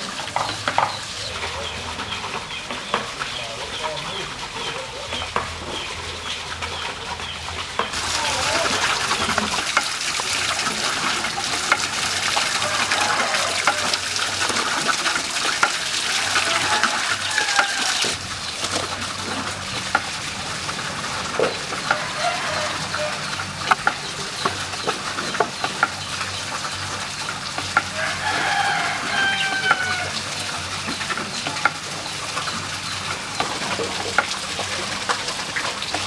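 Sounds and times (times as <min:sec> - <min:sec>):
water wheel splashing: 0:00.0 - 0:36.0
bird calls: 0:00.4 - 0:09.3.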